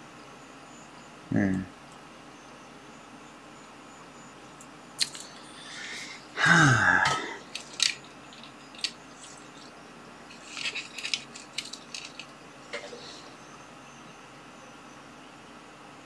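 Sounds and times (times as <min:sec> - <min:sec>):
small items clicking and rustling: 0:05.0 - 0:05.6, 0:07.1 - 0:13.1
man grunting: 0:06.4 - 0:07.4.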